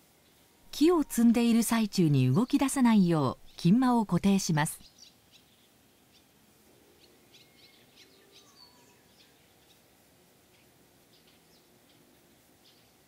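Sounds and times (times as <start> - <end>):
faint small bird chirps: 7.0 - 9.9, 10.5 - 13.0.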